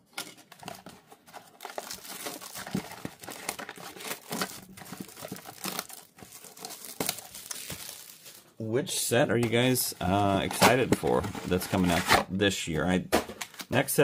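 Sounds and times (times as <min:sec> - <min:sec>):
plastic wrap tearing and crinkling: 0:00.6 - 0:08.5.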